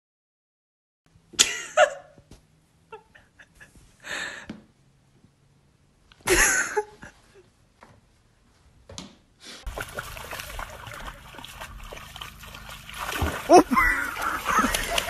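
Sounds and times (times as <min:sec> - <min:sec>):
dog feet splashing in water: 0:09.7 - 0:15.0.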